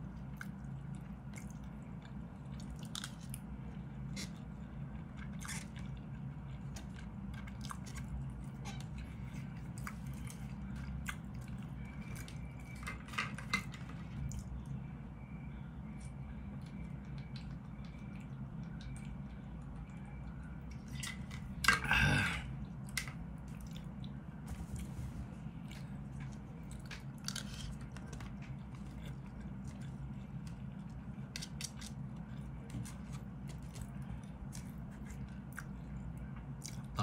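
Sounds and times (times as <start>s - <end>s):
low background hum: 0.0s - 37.0s
chewing: 0.2s - 12.9s, 22.7s - 24.9s, 25.6s - 37.0s.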